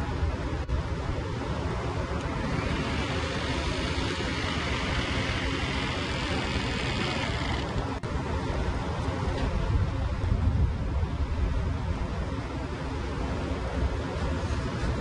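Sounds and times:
heavy machinery rumble: 0:00.0 - 0:08.2
pneumatic tool whirring hiss: 0:02.2 - 0:07.8.

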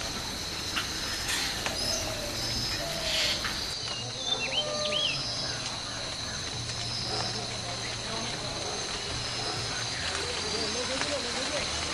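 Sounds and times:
insects trilling: 0:00.0 - 0:11.9
bird chirps: 0:01.1 - 0:07.4.

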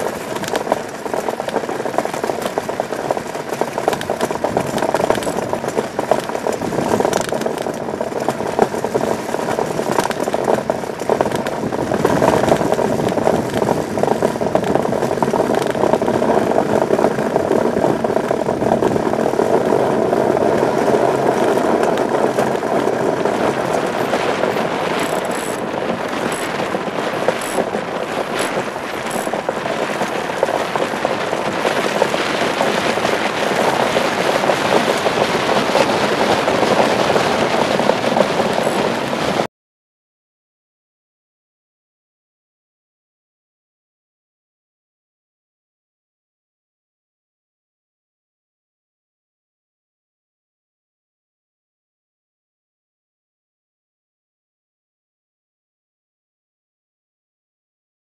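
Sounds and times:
blade skating on ice: 0:00.0 - 0:39.5.

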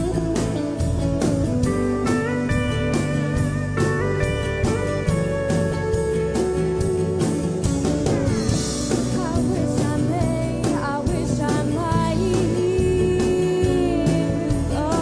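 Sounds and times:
country band playing: 0:00.0 - 0:15.0
woman singing: 0:08.9 - 0:15.0.

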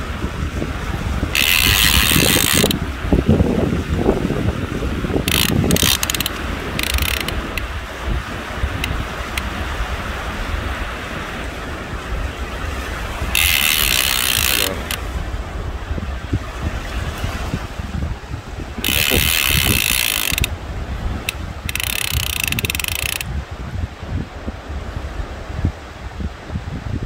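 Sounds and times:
wind and surf rumble: 0:00.0 - 0:27.0
fishing reel ratcheting: 0:01.3 - 0:02.8, 0:05.2 - 0:07.7, 0:13.3 - 0:15.0, 0:18.8 - 0:20.5, 0:21.2 - 0:23.3.

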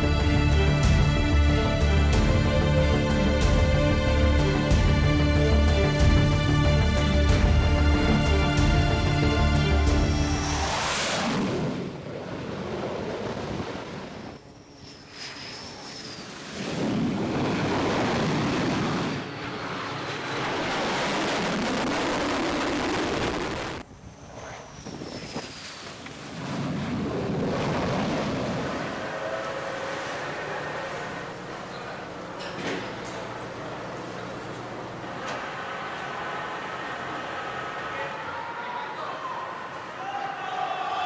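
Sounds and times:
jet engines rushing: 0:08.0 - 0:40.0
faint high whine: 0:14.2 - 0:17.3.

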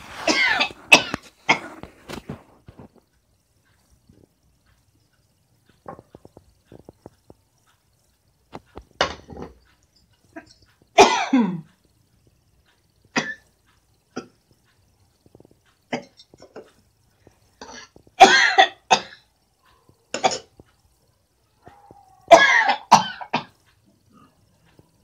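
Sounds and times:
woman coughing: 0:00.2 - 0:01.6, 0:11.0 - 0:11.7, 0:18.2 - 0:19.1, 0:22.3 - 0:23.5.

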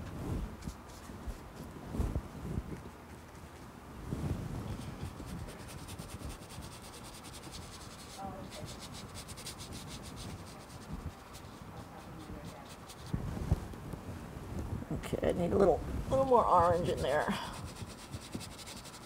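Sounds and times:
paintbrush scrubbing on canvas: 0:04.6 - 0:13.2, 0:16.1 - 0:19.0.

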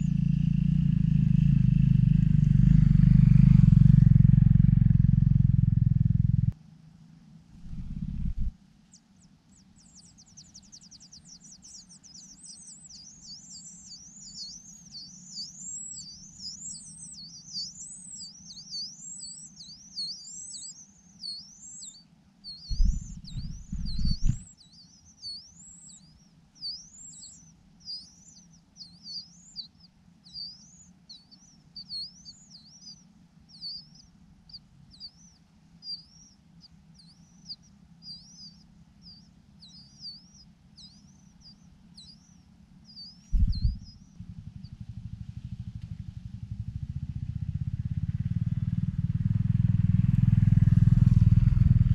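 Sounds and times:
low thumps: 0:07.6 - 0:08.5, 0:22.7 - 0:24.4, 0:43.3 - 0:44.7
nestlings chirping: 0:07.6 - 0:08.5, 0:09.8 - 0:44.7.

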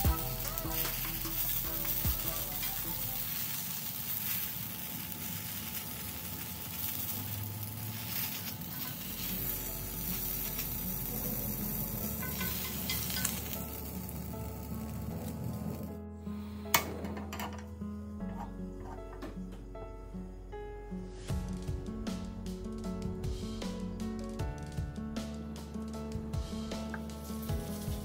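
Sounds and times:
peppers sizzling in oil: 0:00.0 - 0:16.0, 0:26.7 - 0:28.0.

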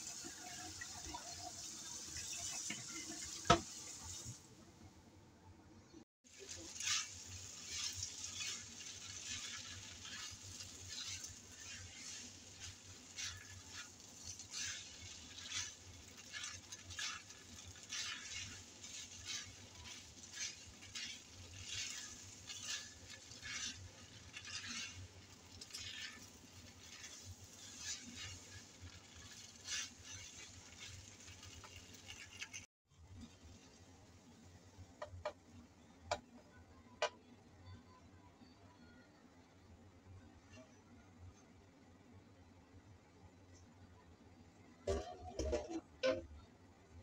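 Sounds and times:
spatula scraping frying pan: 0:00.1 - 0:04.3, 0:06.3 - 0:32.7.

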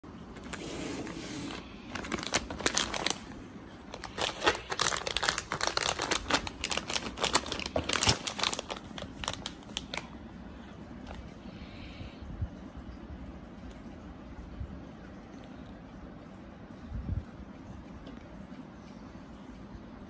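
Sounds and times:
plastic bag crinkling: 0:00.3 - 0:10.2.

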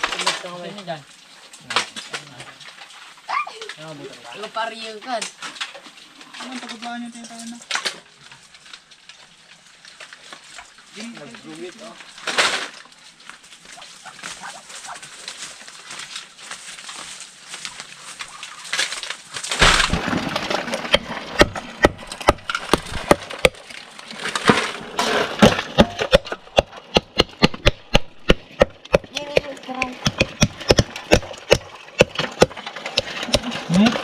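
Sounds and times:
hammer cracking shells on wood: 0:20.8 - 0:23.6, 0:25.4 - 0:33.6.

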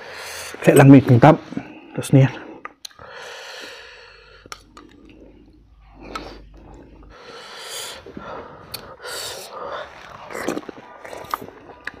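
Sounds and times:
breathing: 0:00.0 - 0:00.6, 0:01.4 - 0:10.0
soft chewing: 0:04.3 - 0:12.0.

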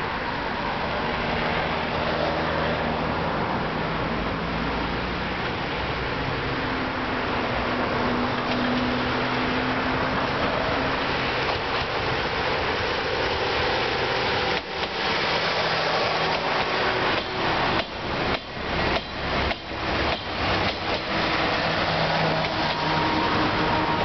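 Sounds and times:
train engine noise: 0:00.0 - 0:24.0
wheels clacking over rail joints: 0:08.2 - 0:24.0.

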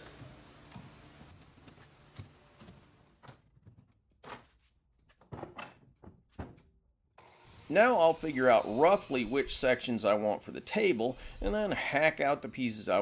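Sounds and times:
wooden boards and clamps knocking: 0:05.2 - 0:06.7.

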